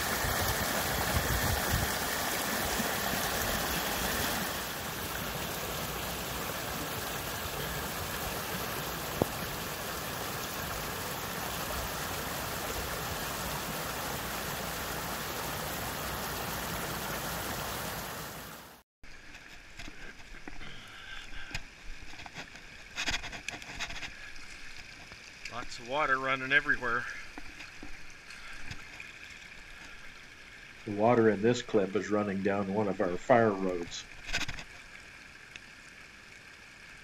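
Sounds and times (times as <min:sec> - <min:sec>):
water trickling over leaves: 0:00.0 - 0:18.5, 0:19.1 - 0:37.0
stream rushing: 0:00.0 - 0:19.9.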